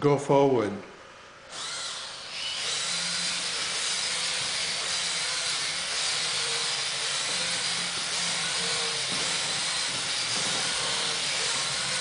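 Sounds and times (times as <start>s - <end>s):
electric motors whirring: 1.5s - 12.0s.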